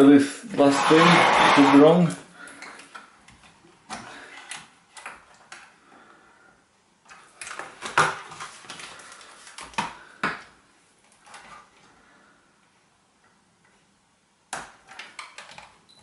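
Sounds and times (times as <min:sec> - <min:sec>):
clicks and knocks of plastic and metal: 0:14.5 - 0:15.8.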